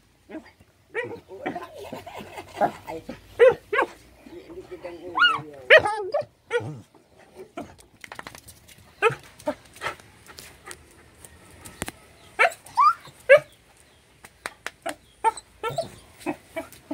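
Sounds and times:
dog whining and yelping: 0:12.4 - 0:13.5, 0:15.2 - 0:16.9.

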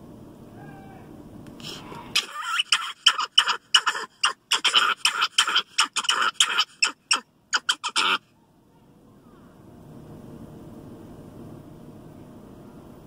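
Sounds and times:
monkey alarm calls: 0:02.2 - 0:08.2.

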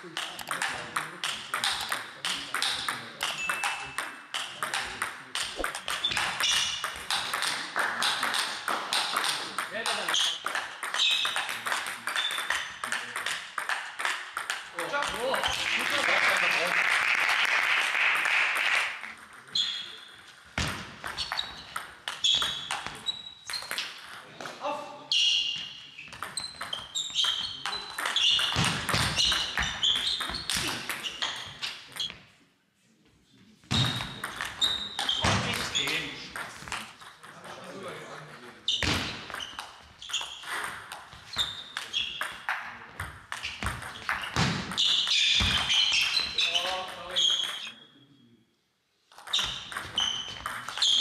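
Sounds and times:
shoes squeaking on floor: 0:05.5 - 0:07.3, 0:21.0 - 0:23.9, 0:25.1 - 0:32.2, 0:33.7 - 0:36.2, 0:38.6 - 0:42.4, 0:43.4 - 0:47.8, 0:49.2 - 0:51.0
applause: 0:15.4 - 0:19.2.

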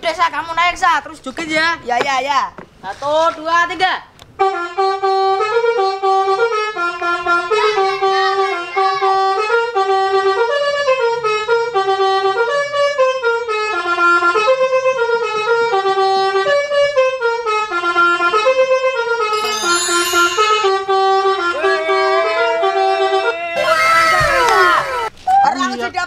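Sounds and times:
bus horn playing melody: 0:04.4 - 0:23.7.

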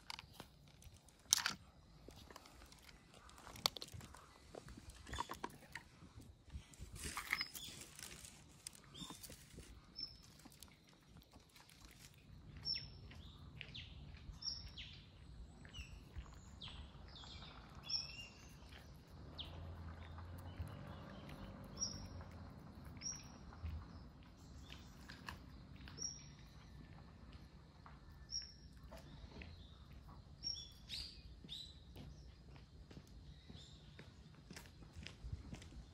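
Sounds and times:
cat crunching kibble: 0:00.0 - 0:13.7, 0:15.5 - 0:26.6
bird chirping: 0:06.8 - 0:27.4, 0:28.0 - 0:32.6.

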